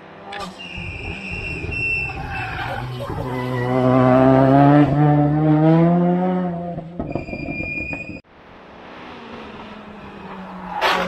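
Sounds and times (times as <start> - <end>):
car engine accelerating hard: 0.0 - 7.0
distant car engine: 0.0 - 11.0.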